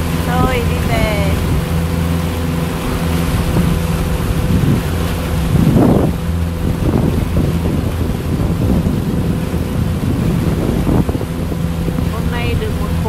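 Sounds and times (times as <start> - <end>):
boat motor humming: 0.0 - 13.0
water against hull: 0.0 - 13.0
wind on microphone: 0.0 - 13.0.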